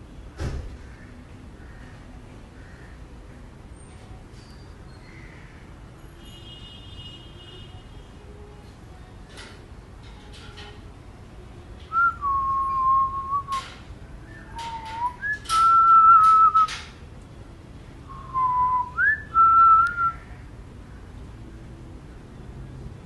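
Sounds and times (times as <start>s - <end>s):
person whistling: 11.9s - 13.6s, 14.3s - 16.7s, 18.1s - 20.2s.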